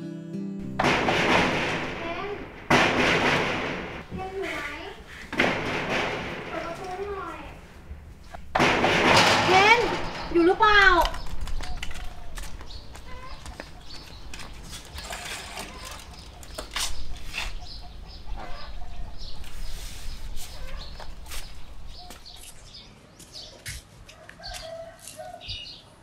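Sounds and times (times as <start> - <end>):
chickens clucking: 9.4 - 22.4
scuffs and rustles: 19.2 - 25.2.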